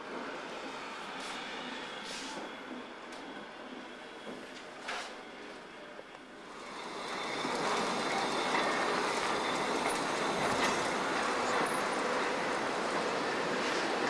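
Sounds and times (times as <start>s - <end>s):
steel wheels rumbling on rails: 0.0s - 14.0s
faint high wheel squeals: 6.6s - 12.5s.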